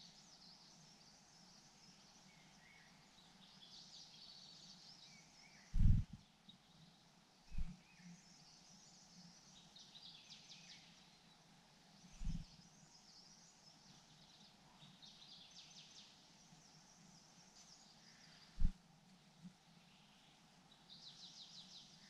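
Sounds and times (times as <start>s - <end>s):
songbird chirping: 0.0s - 22.0s
low thump: 5.8s - 6.2s.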